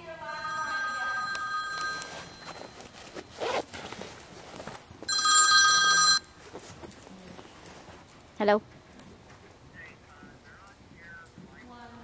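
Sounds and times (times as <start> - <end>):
phone ringing: 0.1 - 3.0, 5.1 - 6.4.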